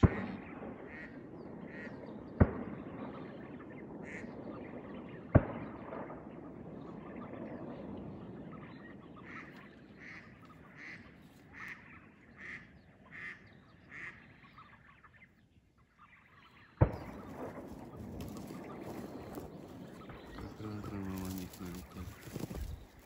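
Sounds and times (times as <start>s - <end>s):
duck quacking: 9.2s - 14.7s.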